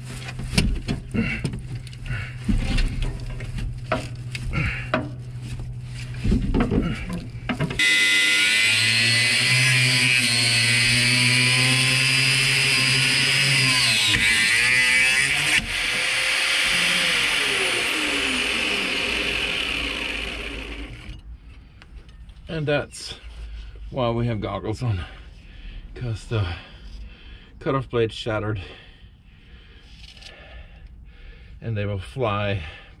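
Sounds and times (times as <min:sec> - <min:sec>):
disc grinder cutting steel: 0:07.8 - 0:21.2.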